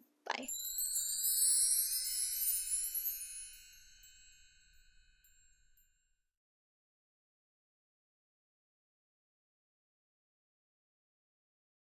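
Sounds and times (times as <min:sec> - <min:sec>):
bright chime sound effect: 0:00.5 - 0:05.9.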